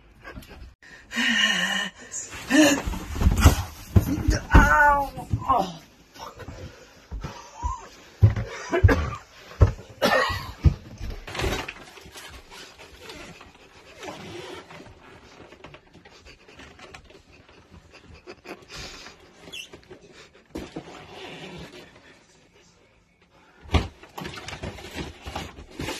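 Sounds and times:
footsteps thudding up stairs: 6.4 - 11.3
breathy panting: 15.0 - 19.4.

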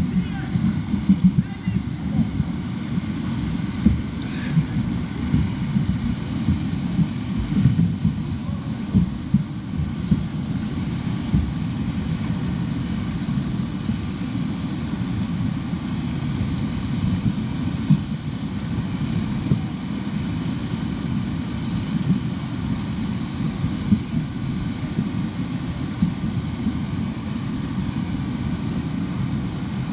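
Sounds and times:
river current rushing: 0.0 - 9.7
wind buffeting microphone: 0.0 - 29.9.

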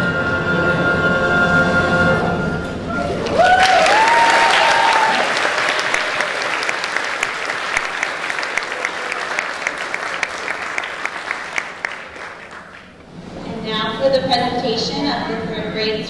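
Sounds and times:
audience applauding: 3.0 - 13.0.

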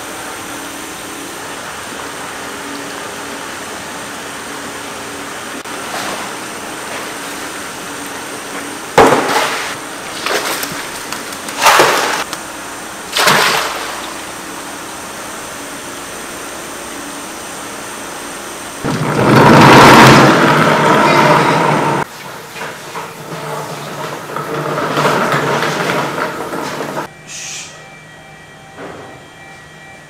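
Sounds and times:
net splashing in water: 9.3 - 12.3, 13.1 - 14.2.

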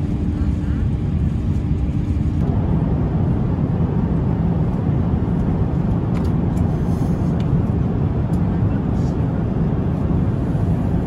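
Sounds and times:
airliner cabin engine noise: 0.0 - 11.0.

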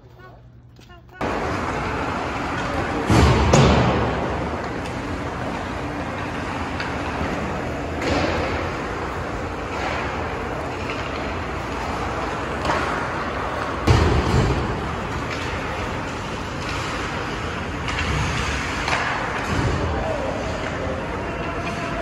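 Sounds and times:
skates and sticks on ice: 1.2 - 22.0
stick and puck knocks: 6.7 - 8.8, 12.5 - 17.1.

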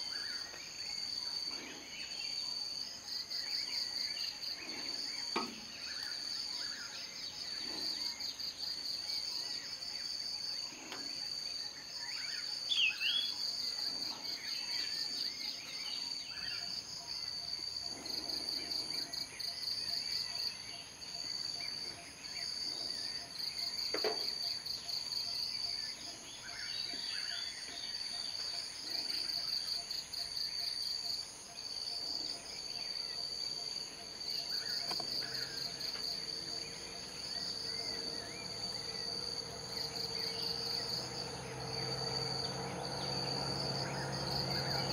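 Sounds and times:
continuous insect buzzing: 0.0 - 44.9
insect trilling: 10.2 - 44.9.

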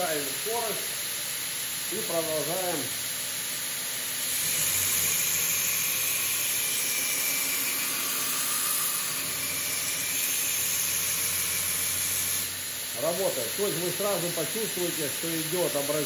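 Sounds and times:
motor hum: 0.0 - 16.0
abrasive belt hissing on steel: 4.0 - 16.0.

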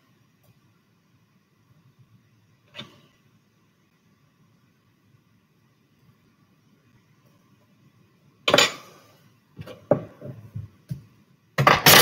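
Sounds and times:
dishes clattering: 8.5 - 9.0.

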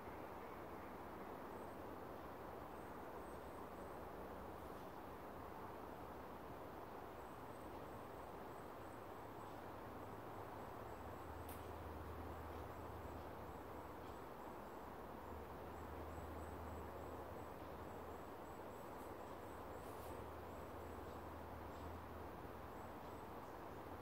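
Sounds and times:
background hiss: 0.0 - 24.0.

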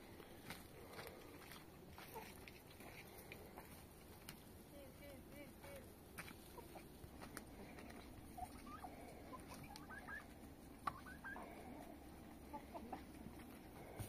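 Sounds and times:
bird chirps: 8.0 - 11.4.

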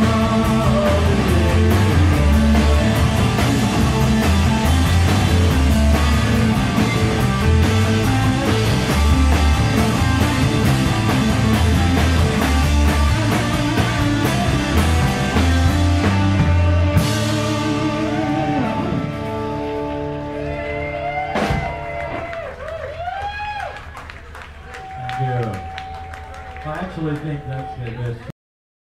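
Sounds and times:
rock band playing live: 0.0 - 22.4.

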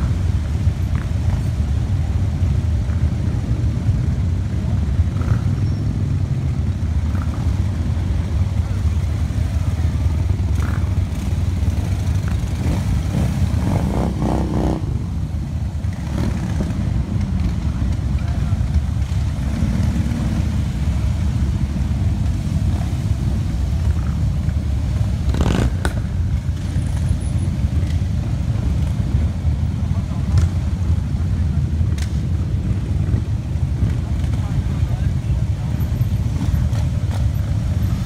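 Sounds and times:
motorcycles rumbling past: 2.8 - 30.8.

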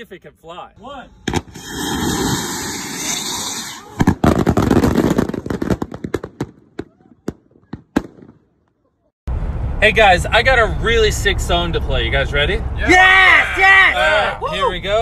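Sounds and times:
firework rockets rushing hiss: 1.1 - 6.6
fireworks crackling bangs: 1.2 - 8.6.

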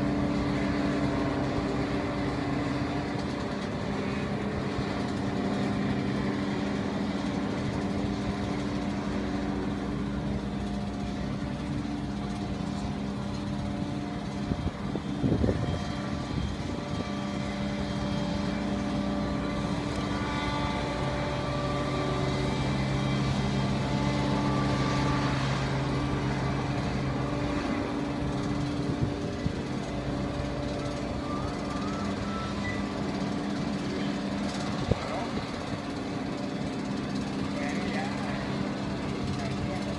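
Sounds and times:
tow tractor mechanical drone: 0.0 - 39.9.

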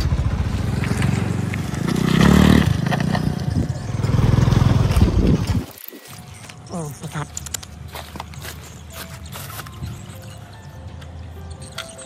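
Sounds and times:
vehicle engine running: 0.0 - 5.6.

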